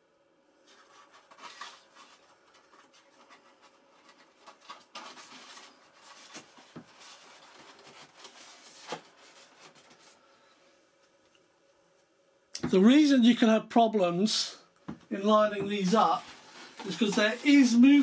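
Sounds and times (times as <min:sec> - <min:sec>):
foam rubbing and scraping: 0:15.7 - 0:18.0.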